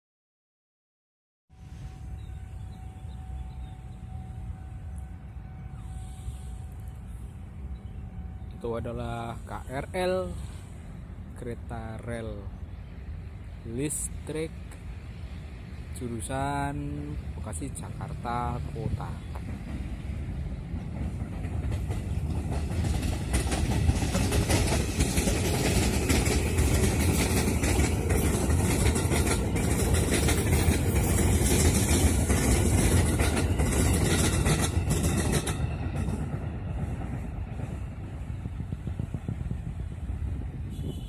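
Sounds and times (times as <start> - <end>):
train wheels rumbling on rails: 1.5 - 41.0.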